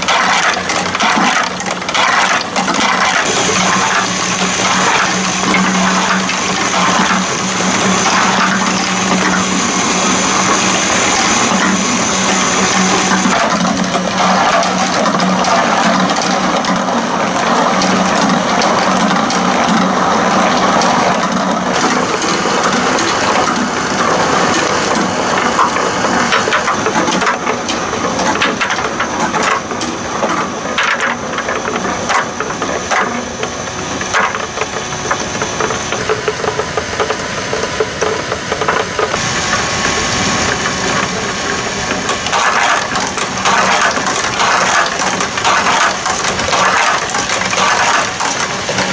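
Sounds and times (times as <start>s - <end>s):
plastic balls clattering: 41.9s - 48.9s.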